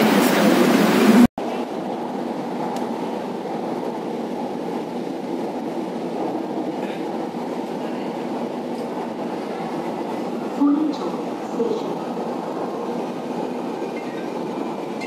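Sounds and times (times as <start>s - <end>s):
metro train running rumble: 0.0s - 15.0s.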